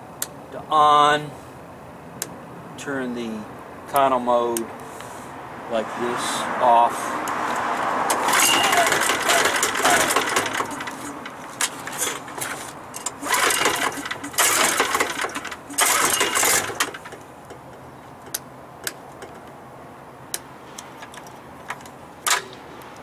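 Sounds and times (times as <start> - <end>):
generator recoil starter pulls: 8.1 - 19.5.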